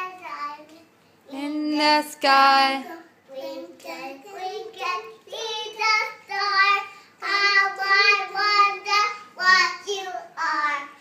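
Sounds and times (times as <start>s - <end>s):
child singing: 2.9s - 11.0s.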